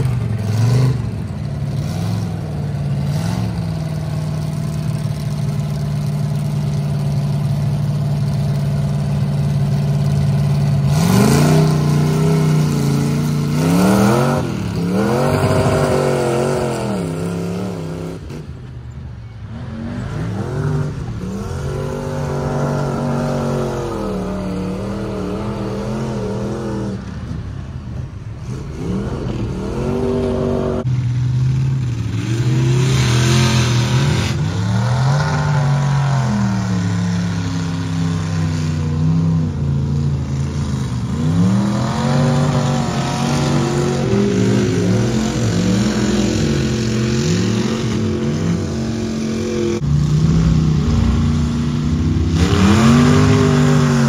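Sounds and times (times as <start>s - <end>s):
truck engine revving: 0.0s - 18.7s, 19.5s - 54.0s.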